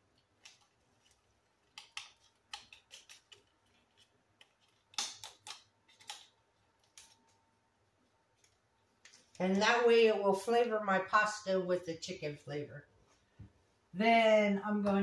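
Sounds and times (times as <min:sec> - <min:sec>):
foil wrapper crinkling: 0:00.2 - 0:07.4.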